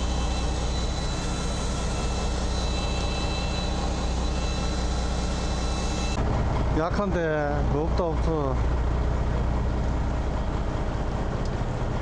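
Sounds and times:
faint high whine: 0.0 - 6.2.

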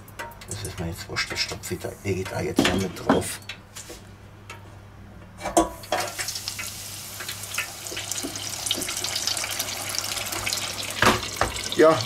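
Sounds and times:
fryer basket clack: 0.0 - 4.7, 5.4 - 12.0
oil bubbling and sizzling: 5.4 - 12.0.

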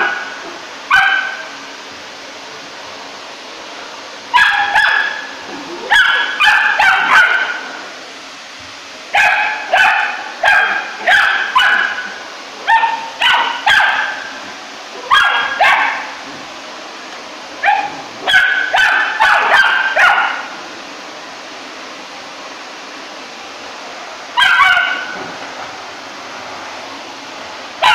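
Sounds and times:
puppy barking: 0.0 - 1.4, 4.3 - 7.7, 9.2 - 14.3, 15.0 - 16.1, 17.6 - 20.5, 24.4 - 25.2
vacuum cleaner whirring: 0.0 - 27.9.

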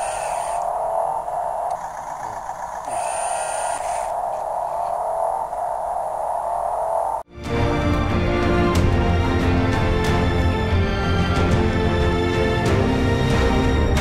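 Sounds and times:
electric motors and gears whirring: 0.0 - 6.9
thin high whine: 0.0 - 7.2.

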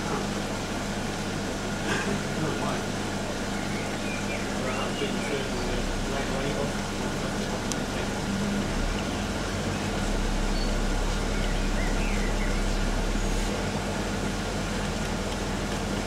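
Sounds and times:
aquarium pumps humming: 0.0 - 16.0
low rumble: 5.3 - 15.3.

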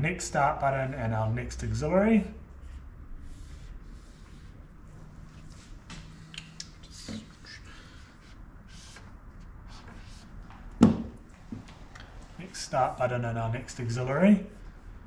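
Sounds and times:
eraser wiping board: 2.7 - 4.6
marker squeaking on whiteboard: 6.5 - 9.1.

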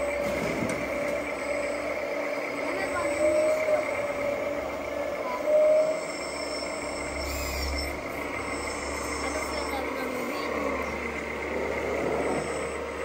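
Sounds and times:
short squeal: 5.5 - 9.6.

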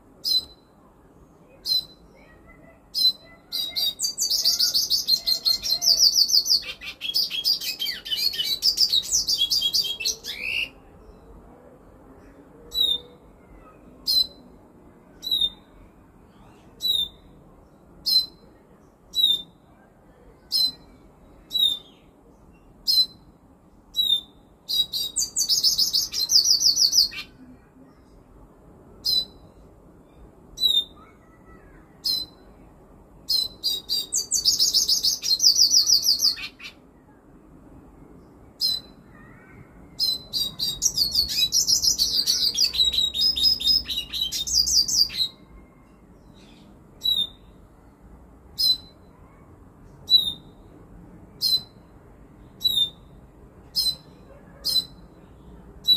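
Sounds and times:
bird twittering song: 0.2 - 0.7, 1.6 - 2.3, 38.6 - 45.4, 46.2 - 47.6.

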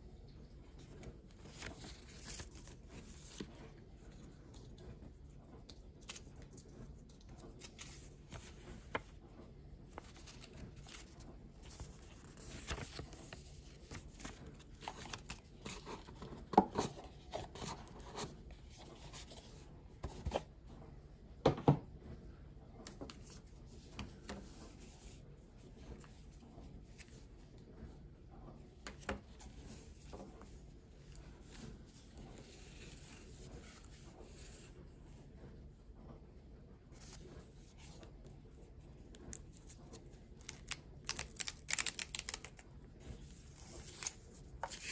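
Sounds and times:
cardboard rustling and scraping: 1.0 - 5.1, 5.9 - 20.5.

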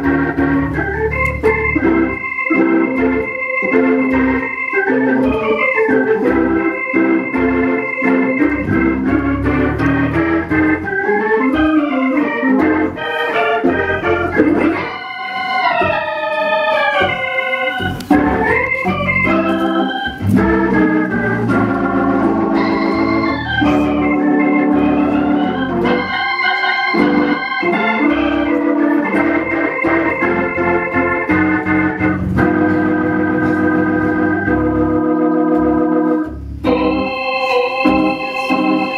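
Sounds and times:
organ music: 0.0 - 38.9.

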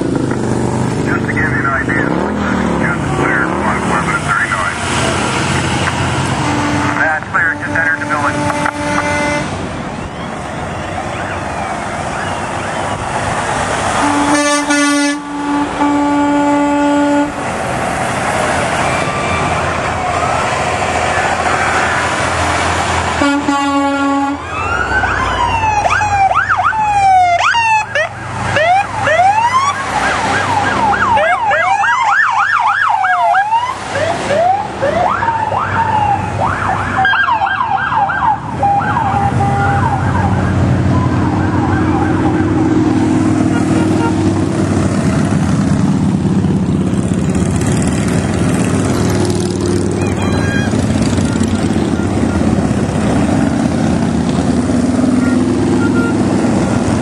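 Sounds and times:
fire truck sirens wailing: 0.0 - 57.0
trucks passing: 0.0 - 57.0
truck air horn blasts: 6.4 - 9.6, 14.0 - 17.4, 23.2 - 24.4, 39.1 - 39.8, 43.1 - 44.4.

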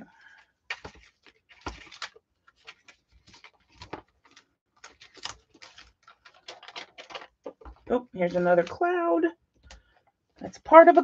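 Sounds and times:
plastic packaging rustling: 0.6 - 8.9.

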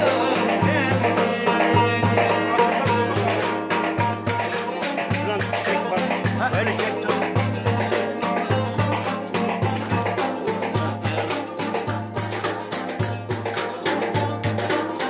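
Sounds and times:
banjo strummed fast: 0.0 - 15.0
steady drum beat: 0.0 - 15.0.

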